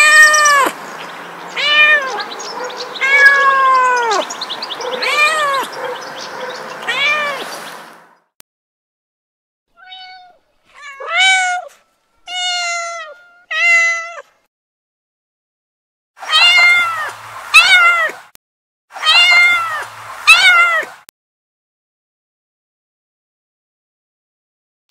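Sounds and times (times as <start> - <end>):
kittens meowing: 0.0 - 0.8, 1.5 - 7.5, 9.8 - 11.7, 12.3 - 14.2, 16.2 - 18.2, 19.0 - 21.0.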